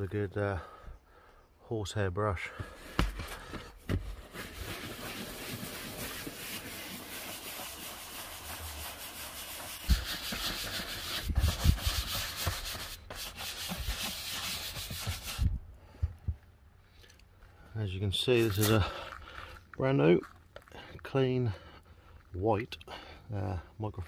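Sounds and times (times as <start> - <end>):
brush scrubbing leather: 4.1 - 15.5, 18.4 - 18.8.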